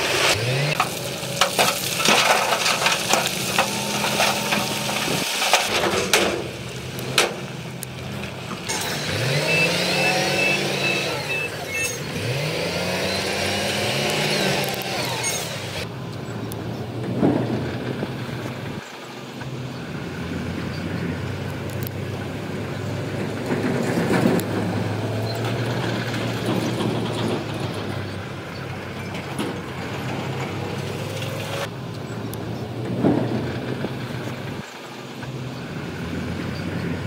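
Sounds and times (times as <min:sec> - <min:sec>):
bulldozer diesel engine revving: 0:00.0 - 0:37.0
quick high beeps: 0:09.4 - 0:12.0
tracks and rock clanking: 0:23.0 - 0:31.7.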